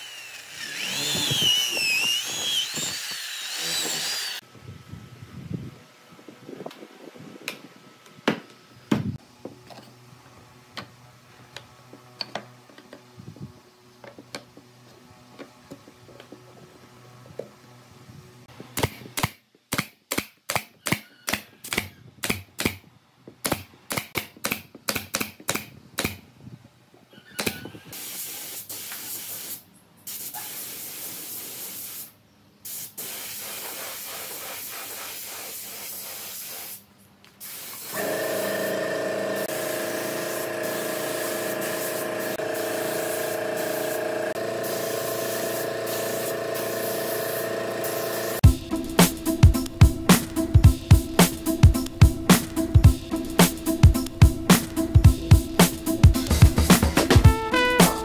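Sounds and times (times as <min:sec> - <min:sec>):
pneumatic nailer firing: 0:00.0 - 0:04.4, 0:37.5 - 0:48.4
spray gun hissing: 0:28.0 - 0:36.8, 0:37.4 - 0:48.4.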